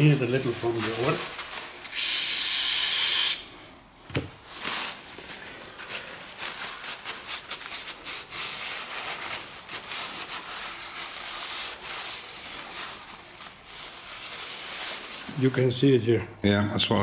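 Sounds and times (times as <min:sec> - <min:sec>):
cloth rubbing strokes: 0:00.0 - 0:01.8, 0:04.4 - 0:16.0.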